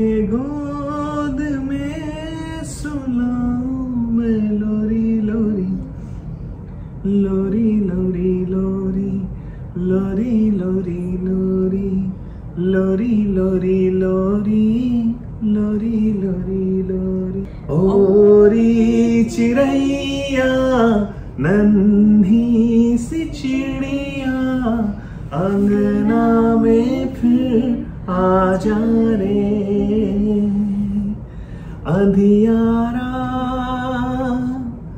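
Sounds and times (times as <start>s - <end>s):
man and woman singing: 0.0s - 6.0s, 7.0s - 34.9s.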